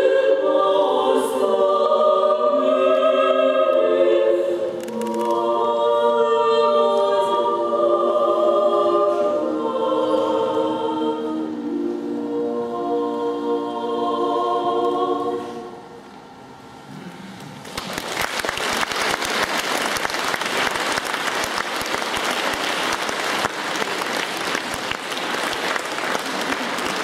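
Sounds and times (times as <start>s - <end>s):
women singing a cappella: 0.0s - 15.9s
audience applauding: 17.6s - 27.0s.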